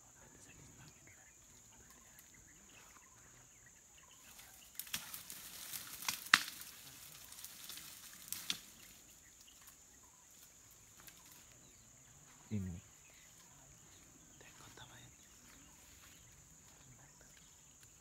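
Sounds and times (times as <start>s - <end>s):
leaves and brush rustling: 0.0s - 18.0s
branches snapping: 4.4s - 9.8s.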